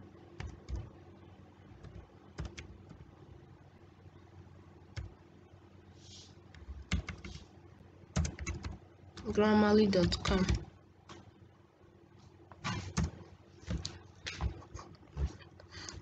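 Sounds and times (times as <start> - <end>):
faint low hum: 0.0 - 16.0
keyboard keystrokes: 6.6 - 7.3, 8.2 - 9.3.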